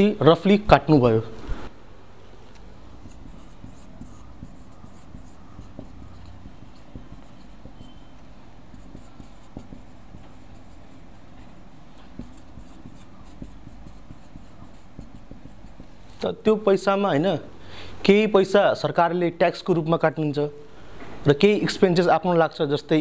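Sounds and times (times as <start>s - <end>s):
low room hum: 0.0s - 22.0s
marker squeaking on whiteboard: 2.9s - 16.4s.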